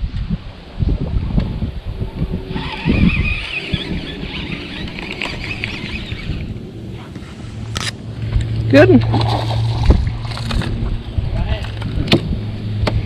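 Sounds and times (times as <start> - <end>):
low handling rumble: 0.0 - 13.0
fishing reel whirring: 2.3 - 6.6.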